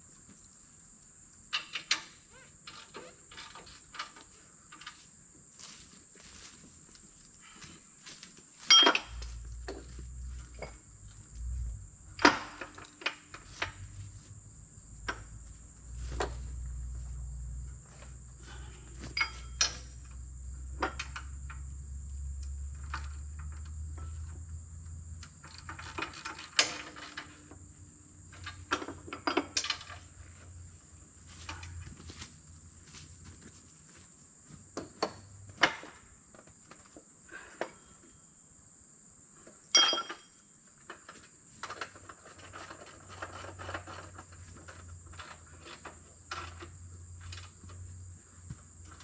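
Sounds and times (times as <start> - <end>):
insects chirping: 0.0 - 49.0
low steady rumble: 9.2 - 12.2
metallic clanks and clicks: 19.1 - 20.0.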